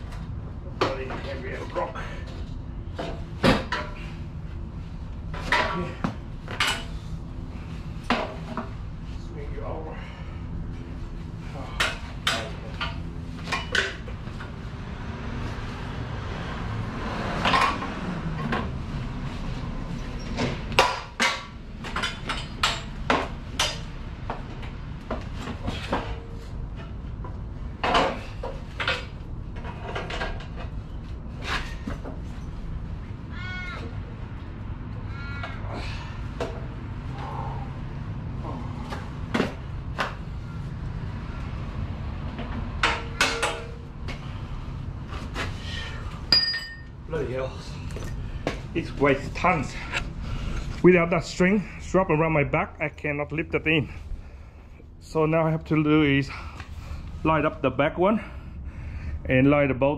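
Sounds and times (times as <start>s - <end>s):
metal parts clanking and scraping: 42.5s - 43.8s.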